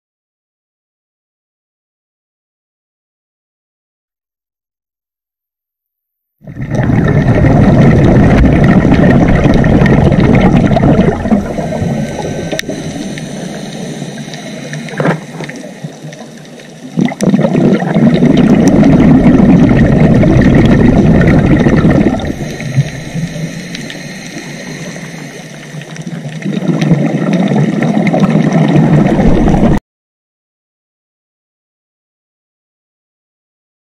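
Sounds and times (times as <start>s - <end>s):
underwater bubbles gurgling: 6.4s - 29.8s.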